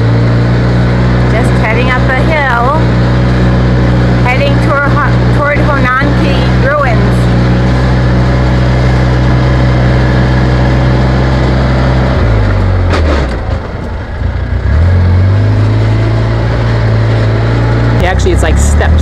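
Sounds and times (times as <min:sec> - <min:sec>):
off-road vehicle engine running: 0:00.0 - 0:19.0.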